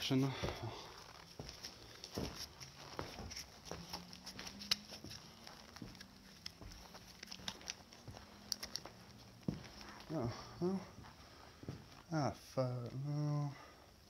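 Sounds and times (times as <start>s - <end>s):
footsteps crunching on debris: 0.0s - 10.4s.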